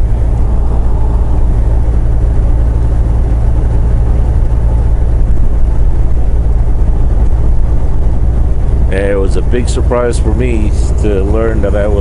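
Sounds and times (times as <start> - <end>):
truck diesel engine droning: 0.0 - 12.0.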